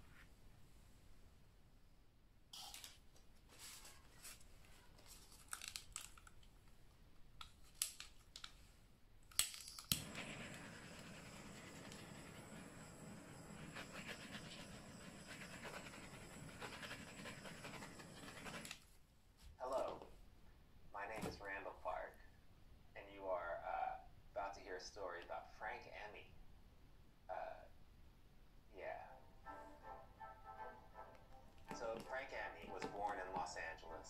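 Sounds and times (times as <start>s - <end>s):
heat tool hissing: 9.9s - 18.8s.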